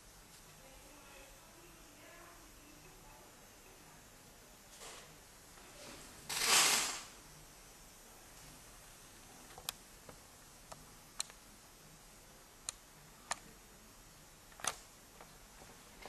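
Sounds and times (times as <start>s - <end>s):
faint steady hiss: 0.0s - 16.0s
sharp clicks and taps: 9.5s - 11.4s.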